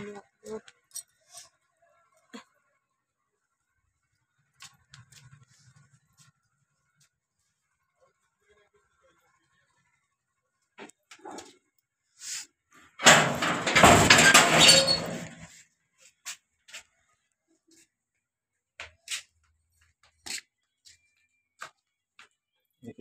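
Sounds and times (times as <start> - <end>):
door opening with scraping rattle: 13.0 - 15.5.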